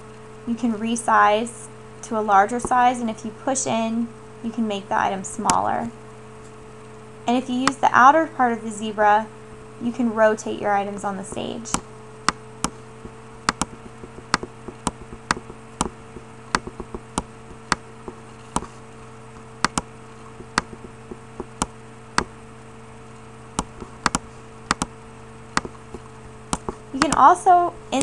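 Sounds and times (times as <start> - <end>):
low electrical hum: 0.0 - 28.0
mouse button clicking: 13.5 - 16.0.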